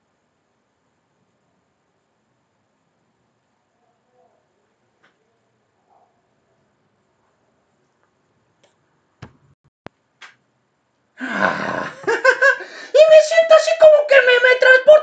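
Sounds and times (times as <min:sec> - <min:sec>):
man making wordless vocal sounds: 0:11.2 - 0:12.1.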